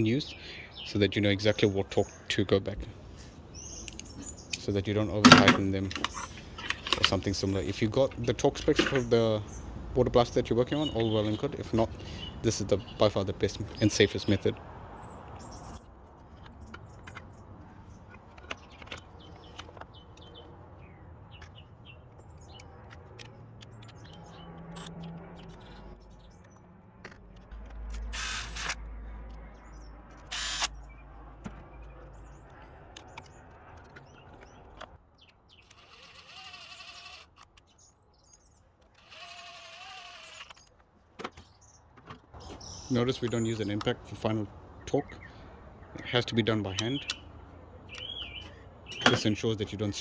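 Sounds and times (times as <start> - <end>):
tools and parts clicking: 3.8 - 4.6, 5.2 - 7.3, 15.8 - 20.5, 21.4 - 30.8, 31.8 - 37.7, 38.3 - 41.4
power driver motor whine: 35.7 - 37.4, 39.0 - 40.5.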